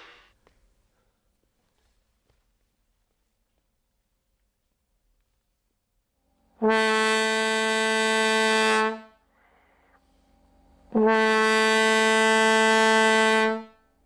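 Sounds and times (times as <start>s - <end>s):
trombone long steady note: 6.4s - 14.0s.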